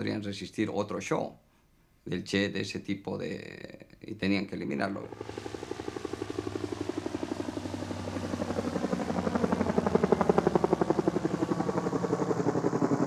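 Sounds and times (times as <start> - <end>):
helicopter rotor beating: 4.8 - 13.0.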